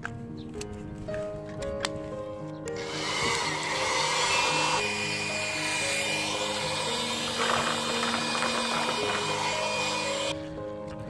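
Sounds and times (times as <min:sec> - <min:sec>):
electric air blower: 0:02.7 - 0:10.4.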